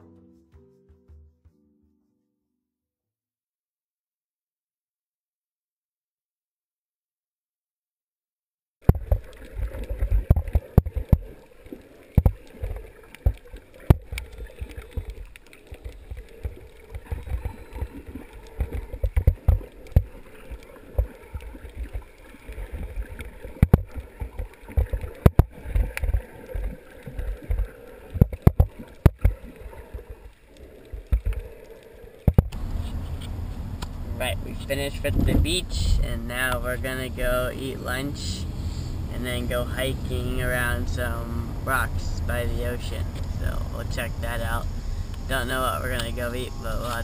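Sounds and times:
sharp underwater clicks: 0:08.8 - 0:34.0
underwater rumble of moving water: 0:08.9 - 0:47.0.

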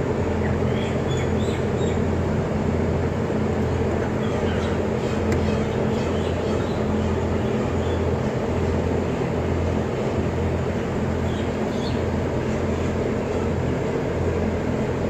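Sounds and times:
blower low drone: 0:00.0 - 0:15.0.

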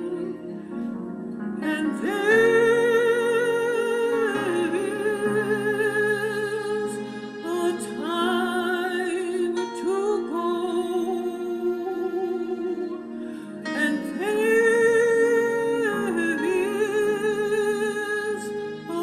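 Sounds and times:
woman singing with vibrato: 0:01.6 - 0:13.0.

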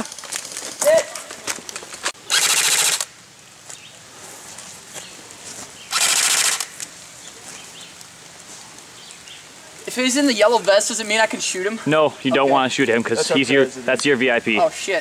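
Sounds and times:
airsoft rifle bursts: 0:02.3 - 0:03.1, 0:05.9 - 0:06.8.

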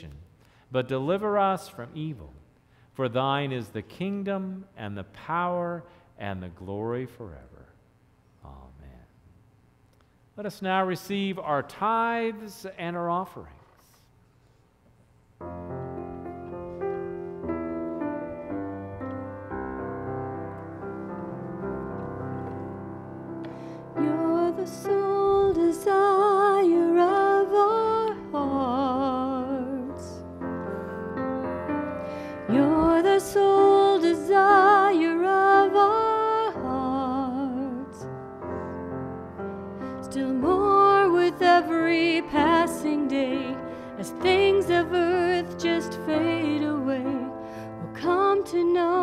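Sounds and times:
keyboard accompaniment: 0:15.4 - 0:49.0
person singing with vibrato: 0:23.8 - 0:38.1, 0:39.9 - 0:49.0.

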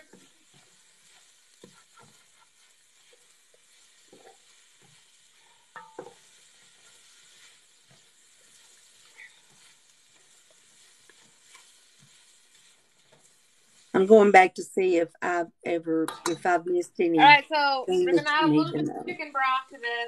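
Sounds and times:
spatula scraping pan: 0:00.0 - 0:14.3
vegetables sizzling in a pot: 0:00.0 - 0:20.0
spatula knocking against pot: 0:05.8 - 0:06.2.

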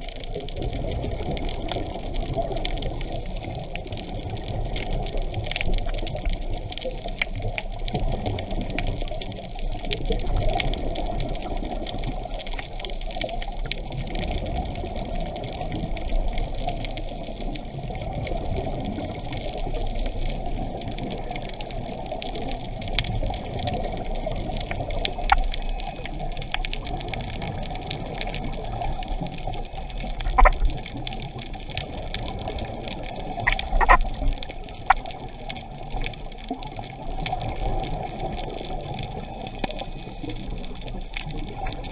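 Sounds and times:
muffled underwater water noise: 0:00.0 - 0:41.9
sharp clicks: 0:30.1 - 0:30.8.

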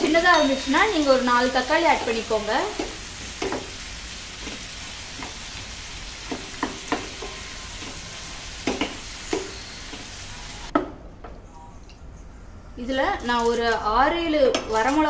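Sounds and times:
onions sizzling in butter: 0:00.0 - 0:10.7.

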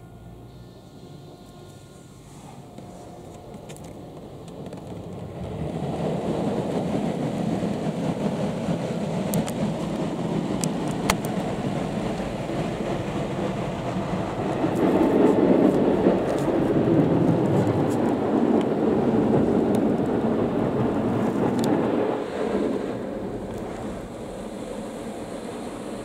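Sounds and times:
car wash water spray: 0:05.9 - 0:26.0.

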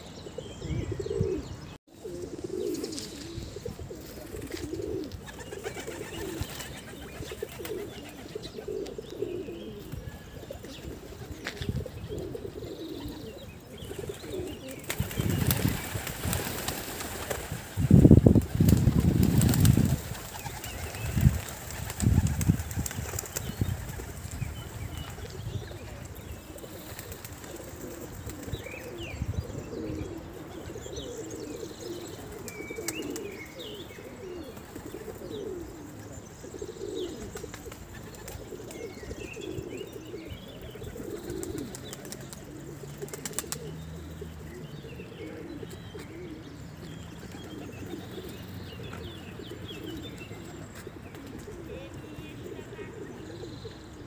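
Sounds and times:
pigeons cooing: 0:00.0 - 0:54.0
small birds chirping: 0:00.0 - 0:54.0
pigeon wings flapping: 0:14.8 - 0:24.3, 0:43.0 - 0:43.7.

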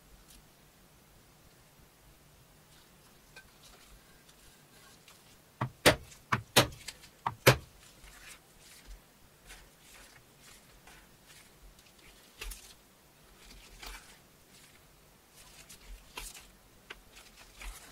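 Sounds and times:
mallet striking chisel through leather: 0:05.6 - 0:07.7.

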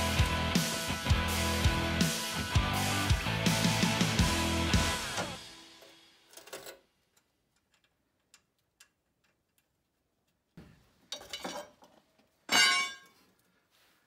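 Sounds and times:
wrenches rattling on concrete: 0:11.1 - 0:13.2.

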